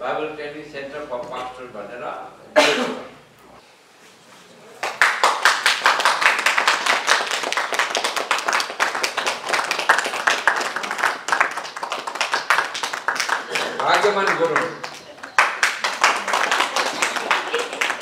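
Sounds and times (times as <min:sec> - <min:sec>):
audience applauding: 0:04.8 - 0:18.0.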